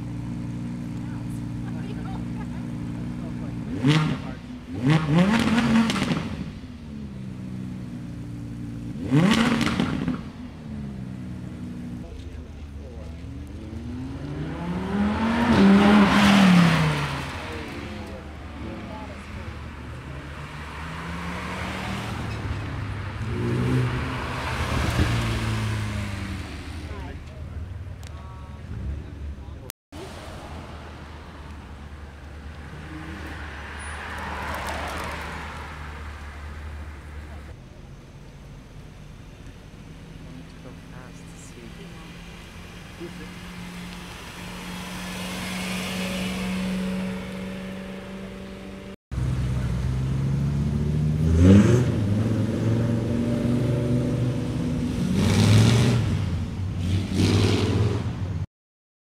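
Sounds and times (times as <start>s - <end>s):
engine revving: 0.0s - 27.4s, 40.4s - 58.2s
car engines running: 0.0s - 58.5s
sports car driving past: 40.0s - 58.1s.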